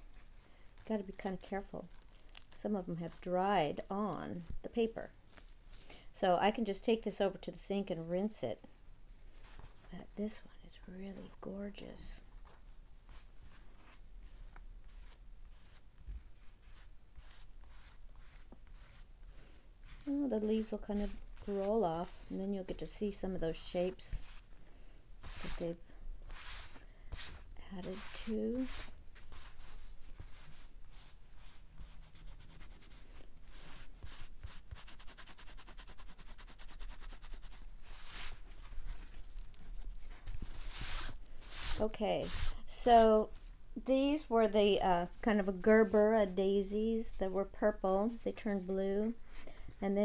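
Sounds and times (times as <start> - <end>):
paper rustling and scraping: 25.2 - 25.7, 26.3 - 43.1.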